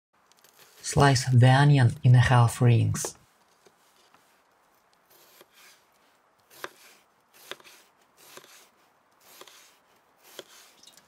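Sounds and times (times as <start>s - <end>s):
knife slicing onion: 5.1s - 10.7s.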